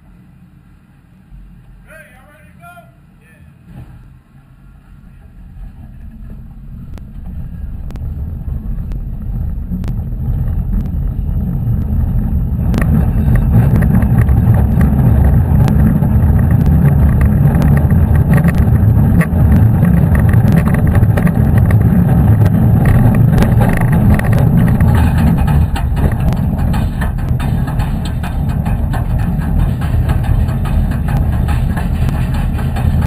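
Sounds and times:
roller coaster rumbling on track: 1.3 - 33.0
clicks and clacks: 5.6 - 33.0.

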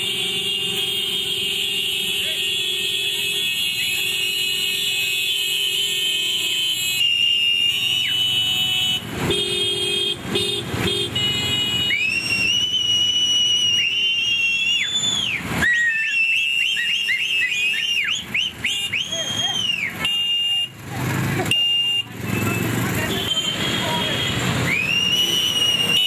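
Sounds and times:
horn honks: 0.0 - 12.5, 16.5 - 26.0
motorcycle engines running: 18.1 - 26.0.

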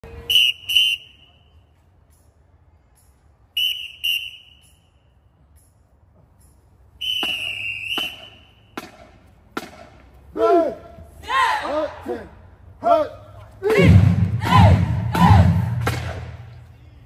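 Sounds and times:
whistle blasts: 0.2 - 1.7, 3.5 - 5.2, 7.0 - 8.8.

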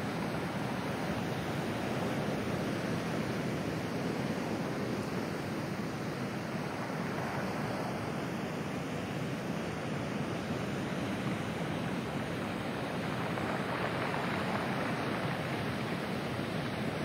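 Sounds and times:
surf washing over pebbles: 0.0 - 17.0.

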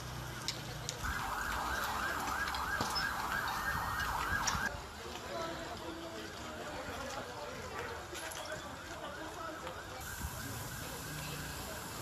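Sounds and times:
emergency siren yelping: 1.0 - 4.7, 9.7 - 11.6.

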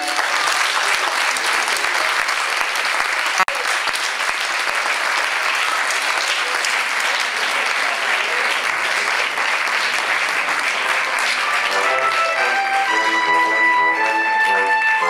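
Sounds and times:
audience applauding: 0.0 - 15.0
music with held notes: 11.1 - 15.0.

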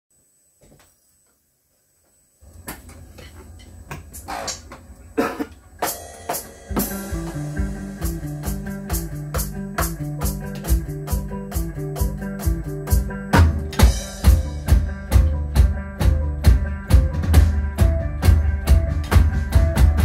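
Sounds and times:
rock band with drum beat: 5.2 - 20.0
cymbal crashes: 5.8 - 9.2.

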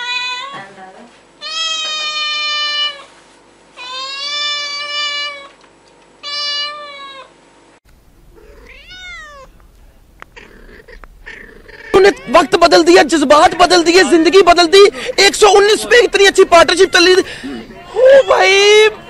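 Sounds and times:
cat meowing: 0.0 - 0.7, 1.4 - 3.0, 3.8 - 5.5, 6.2 - 7.3, 8.4 - 9.6, 10.4 - 12.9, 16.4 - 19.0.

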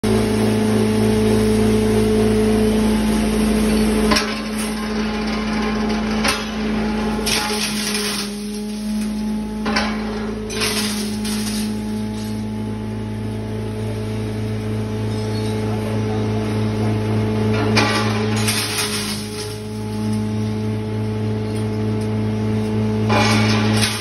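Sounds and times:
grinding machine humming: 0.0 - 24.0
sharp cracks of glass: 7.2 - 9.2, 10.5 - 12.4, 17.8 - 20.2, 23.1 - 24.0.

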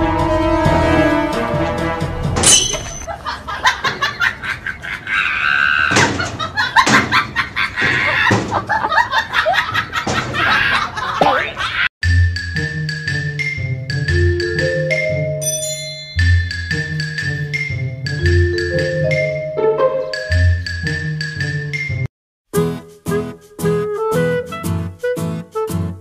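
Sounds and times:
people laughing: 3.1 - 11.9
people talking: 10.8 - 11.8.

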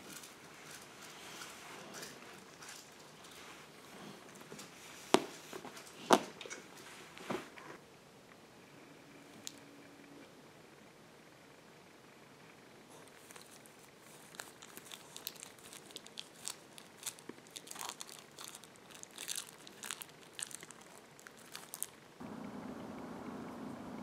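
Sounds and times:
puppy chewing plastic wrapper: 0.0 - 6.6, 13.0 - 22.0
outdoor background noise: 0.0 - 24.0.

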